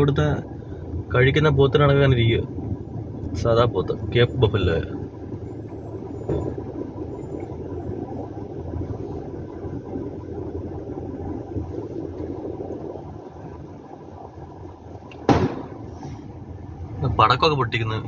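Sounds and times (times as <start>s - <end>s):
vehicle engine rumble: 0.0s - 18.0s
firecracker bang: 15.2s - 16.0s.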